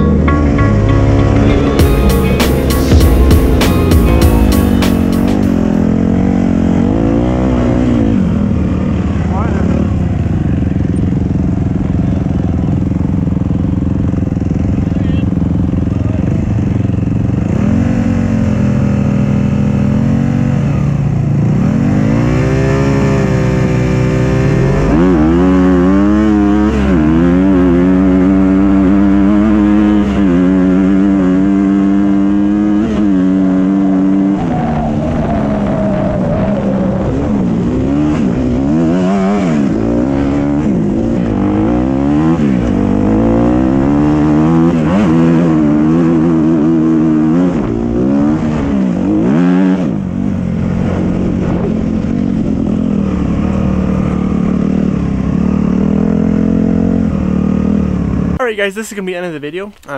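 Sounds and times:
dirt bike engine revving: 0.0 - 59.1
off-road vehicle engines: 0.0 - 59.9.

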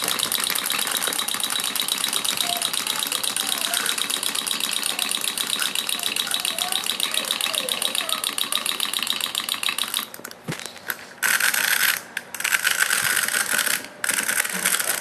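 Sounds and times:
clockwork ticking: 0.0 - 10.2
clockwork whirring: 0.0 - 10.4, 11.2 - 15.0.

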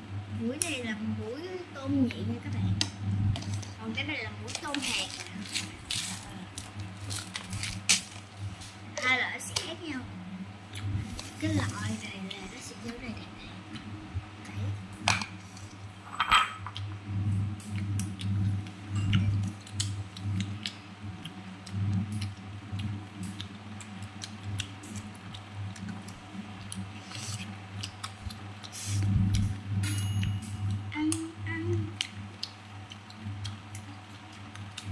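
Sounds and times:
crunchy fruit chewing: 4.6 - 8.6, 17.8 - 29.6.

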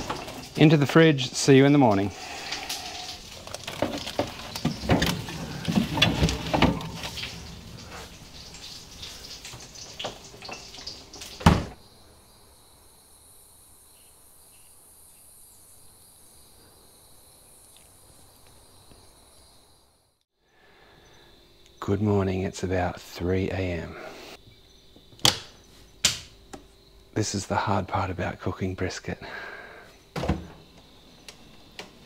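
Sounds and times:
tray clattering: 0.0 - 0.8, 3.3 - 11.7
crickets chirring: 0.0 - 32.0.

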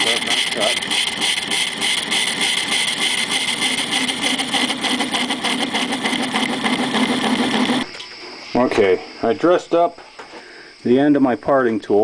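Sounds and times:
lathe tool chattering: 0.0 - 7.9
lathe running: 0.0 - 8.0.

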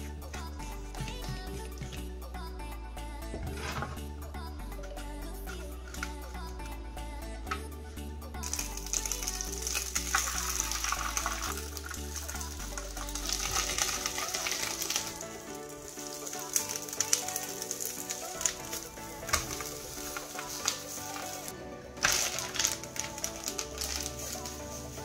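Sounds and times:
background music: 0.0 - 25.0
batter sizzling in a pan: 8.4 - 21.5.

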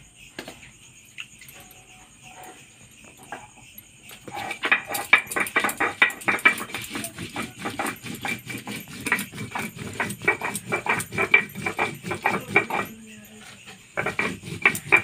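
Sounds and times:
stone grinding on stone: 3.3 - 15.0.

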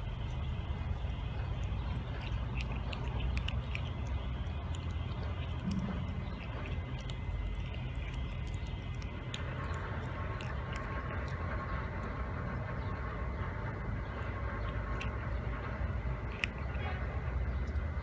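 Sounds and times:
cat chewing and licking: 0.0 - 18.0
low rumble: 0.0 - 18.0.

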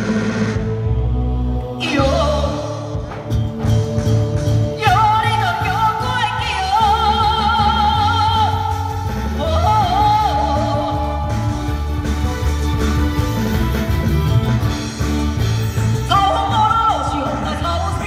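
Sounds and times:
opera singing: 0.6 - 3.2, 4.6 - 12.2, 16.0 - 18.0
accompaniment band with pulsing beat: 10.2 - 16.7.

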